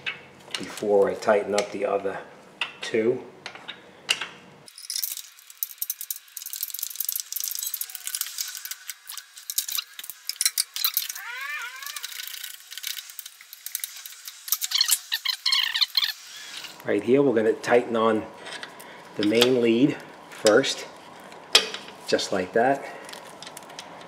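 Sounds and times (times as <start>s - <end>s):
squeaky chirps: 10.8s - 12.5s, 14.5s - 16.2s.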